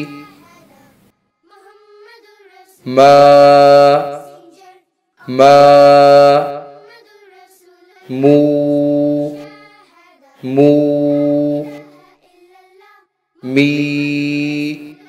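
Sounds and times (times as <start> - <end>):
person reciting drawn-out syllables: 0.0 - 0.7, 2.7 - 7.0, 7.9 - 12.2, 13.4 - 15.0.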